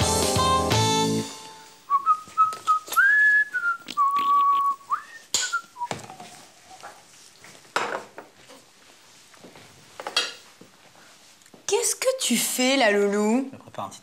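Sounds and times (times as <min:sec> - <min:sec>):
jazz music: 0:00.0 - 0:02.0
man whistling a tune: 0:01.9 - 0:05.9.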